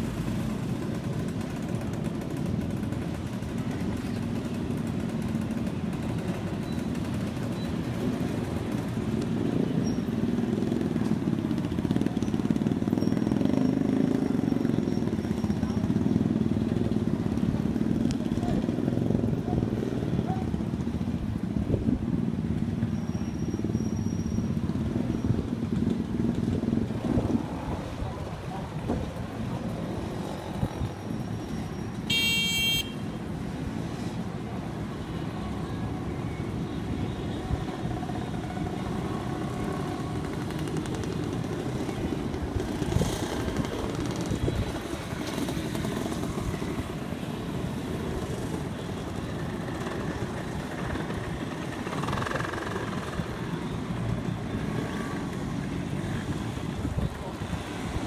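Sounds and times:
motorcycle engines running: 0:00.0 - 0:58.0
high-pitched horn toot: 0:32.1 - 0:33.0.

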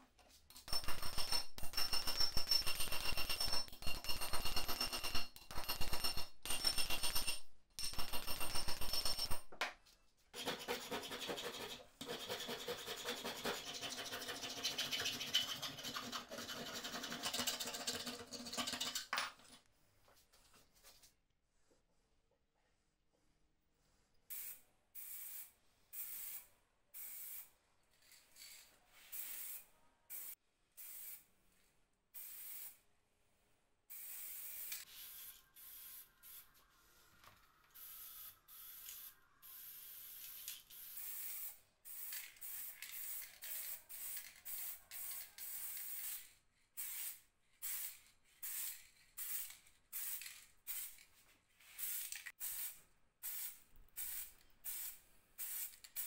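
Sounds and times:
spray paint can hissing: 0:24.3 - 0:27.5, 0:28.4 - 0:31.3, 0:32.2 - 0:32.8, 0:33.9 - 0:36.5, 0:37.8 - 0:51.0, 0:51.6 - 0:56.0.

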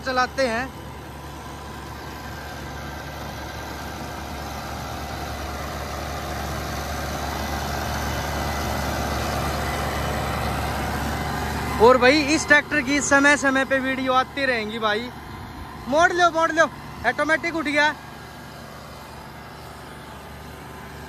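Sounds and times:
tractor diesel engine running: 0:00.0 - 0:21.0.

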